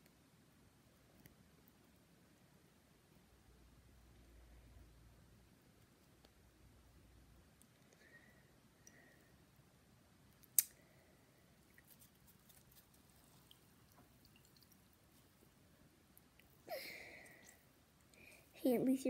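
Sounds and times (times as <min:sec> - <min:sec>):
faint plastic clicks: 0:07.5 - 0:09.2
small liquid sounds: 0:10.3 - 0:18.6.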